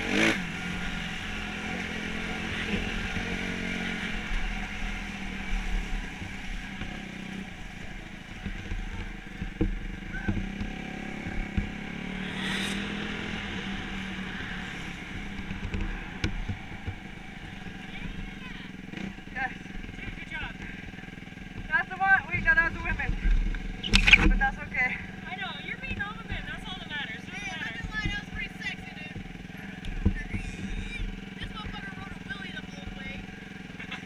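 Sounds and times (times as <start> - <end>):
dirt bike engine running: 0.0 - 34.0.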